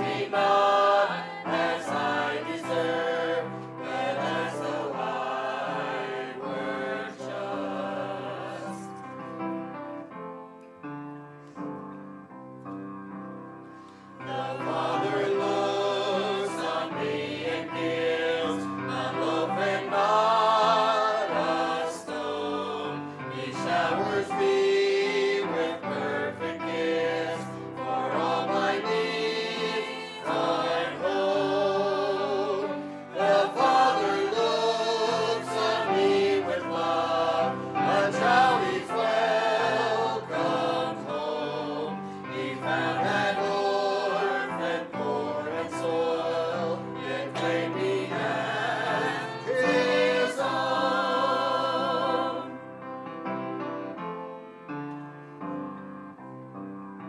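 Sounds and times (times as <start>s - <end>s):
choir singing: 0.0s - 9.6s, 14.2s - 52.9s.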